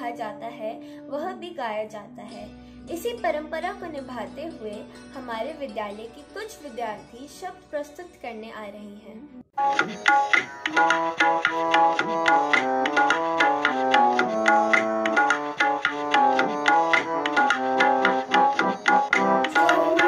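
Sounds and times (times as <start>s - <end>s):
melody of held notes: 9.6s - 20.0s
tabla strokes: 9.6s - 20.0s.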